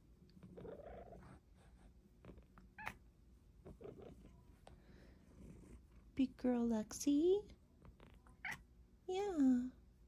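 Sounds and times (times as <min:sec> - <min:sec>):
cat purring: 0:00.3 - 0:03.0, 0:03.6 - 0:06.6.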